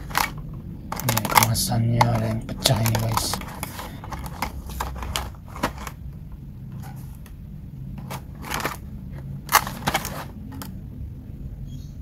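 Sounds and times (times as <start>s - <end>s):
plastic packaging crinkling: 0.0s - 6.0s, 8.0s - 10.7s.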